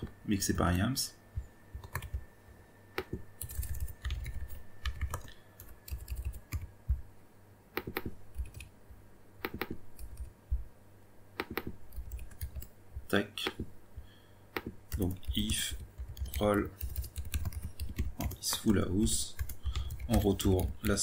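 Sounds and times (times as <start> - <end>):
typing on computer keyboard: 1.8 - 2.2, 3.0 - 6.7, 7.8 - 8.7, 11.4 - 12.7, 14.6 - 21.0.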